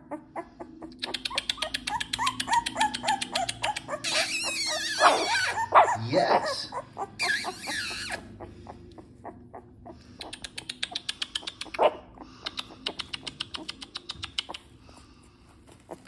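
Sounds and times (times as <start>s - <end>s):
puppies whining and squeaking: 0.0s - 15.1s, 15.7s - 16.0s
puppy yelp: 1.1s - 8.4s
fast short clicks: 10.2s - 11.8s.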